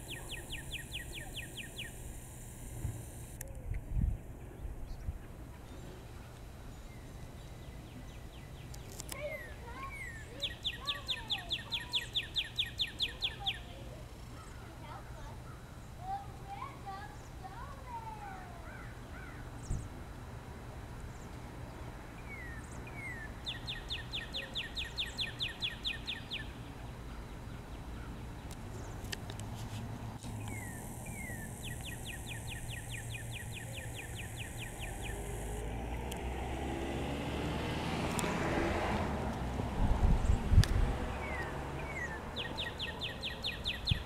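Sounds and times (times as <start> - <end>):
songbird trilling: 0.0 - 2.0, 7.6 - 14.7, 22.2 - 28.2, 30.3 - 36.2, 41.2 - 44.0
bird chirps: 0.0 - 2.1, 6.6 - 13.8, 22.2 - 28.2, 30.4 - 36.2, 41.2 - 44.0.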